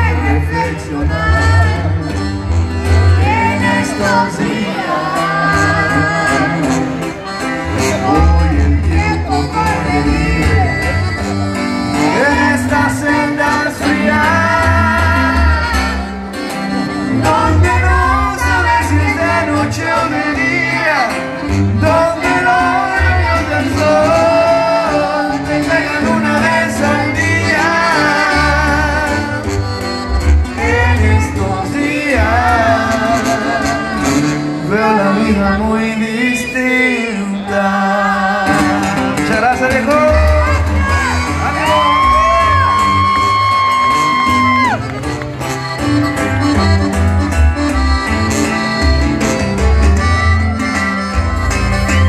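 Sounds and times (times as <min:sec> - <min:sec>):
man singing through microphone: 0:00.0 - 0:11.2, 0:11.8 - 0:16.2, 0:17.0 - 0:29.6, 0:30.5 - 0:43.2
deep bass line: 0:00.0 - 0:36.2, 0:38.1 - 0:52.0
guitar: 0:00.0 - 0:52.0.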